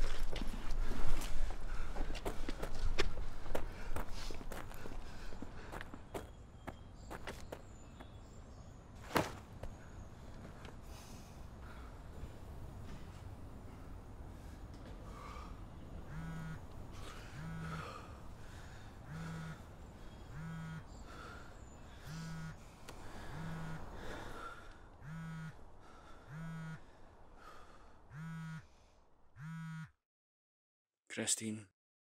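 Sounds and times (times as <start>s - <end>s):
faint street background: 0.0s - 30.0s
man breathing heavily with groans: 0.5s - 6.1s, 9.8s - 29.3s.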